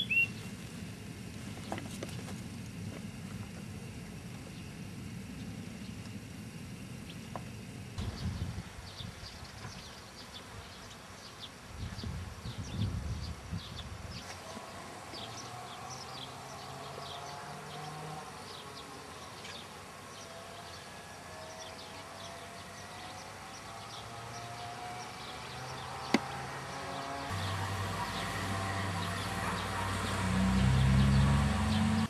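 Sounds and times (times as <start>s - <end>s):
small birds chirping: 0.0s - 0.6s, 7.0s - 32.0s
faint wavering buzzing drone: 0.0s - 32.0s.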